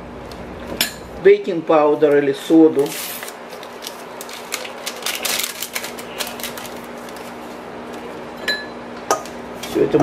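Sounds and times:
paper sachet crinkling: 2.7s - 8.2s.

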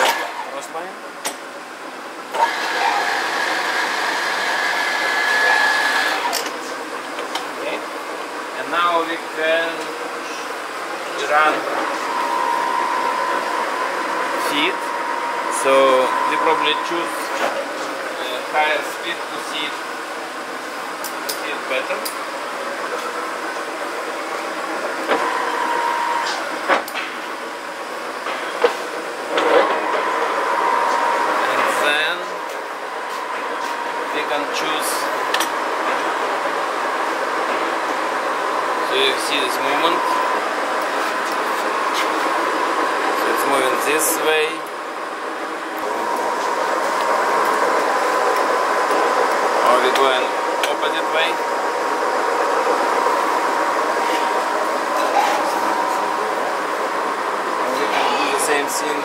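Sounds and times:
lathe motor whine: 2.2s - 7.2s, 10.1s - 21.0s, 22.6s - 26.7s, 27.4s - 59.0s.

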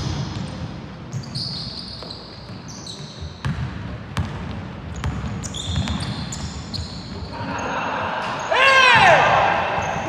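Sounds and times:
sneakers squeaking on court: 0.0s - 7.8s
basketball bouncing: 3.4s - 6.1s.

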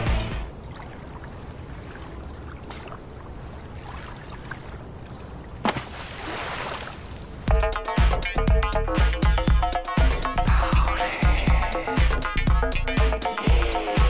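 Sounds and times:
electronic music with a beat: 0.0s - 0.5s, 7.5s - 14.0s
wind and water at shoreline: 0.0s - 7.6s.

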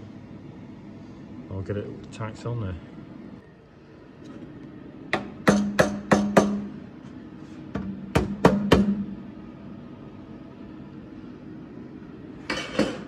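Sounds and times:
hammer striking steel: 5.1s - 6.7s.

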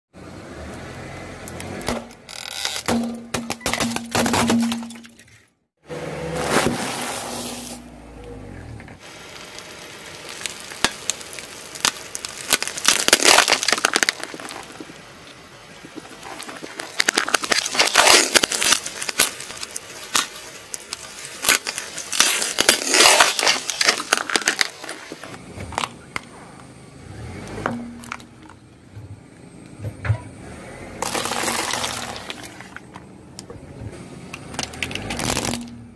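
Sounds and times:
tyre crushing plastic: 10.3s - 26.0s, 31.0s - 33.0s, 34.4s - 35.9s.

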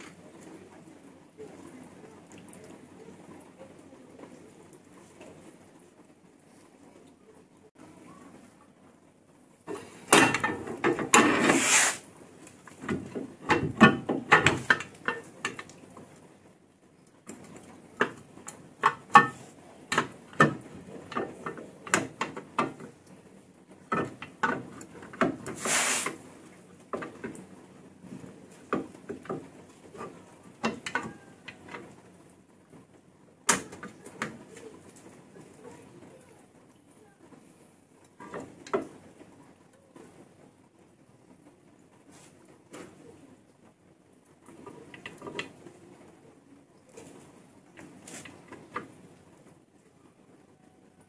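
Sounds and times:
short hiss bursts: 11.3s - 12.1s, 25.6s - 26.2s.

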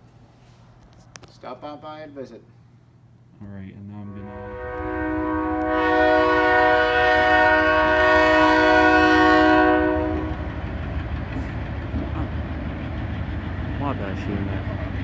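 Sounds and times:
train rumbling: 3.8s - 15.0s
locomotive horn: 4.0s - 10.6s.

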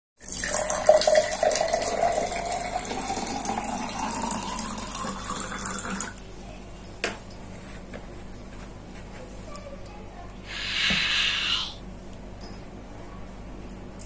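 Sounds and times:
water pouring into a glass: 0.2s - 6.2s.

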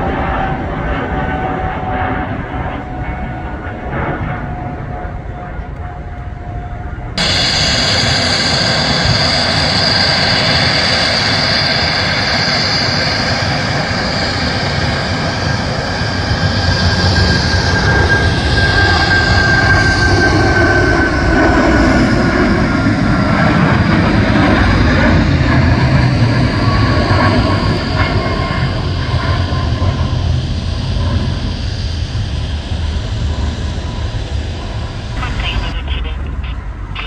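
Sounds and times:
jet engines roaring: 0.0s - 37.0s.

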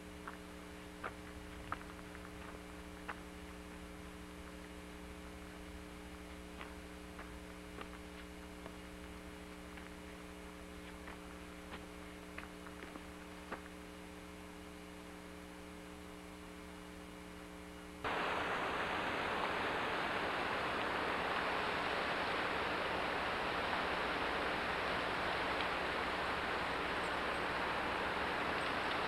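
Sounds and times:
low electrical hum: 0.0s - 29.0s
water rushing over spillway: 18.1s - 29.0s
faint clicks: 28.4s - 29.0s.

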